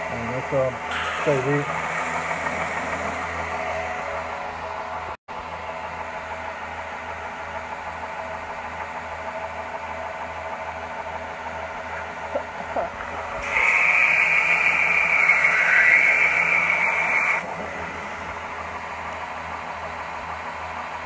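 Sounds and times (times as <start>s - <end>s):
high-pitched metal grinding: 13.3s - 17.4s.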